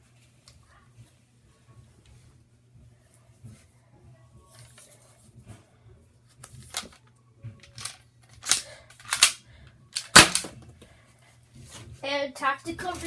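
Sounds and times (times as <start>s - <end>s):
sharp plastic snaps: 7.6s - 9.4s, 10.0s - 10.6s.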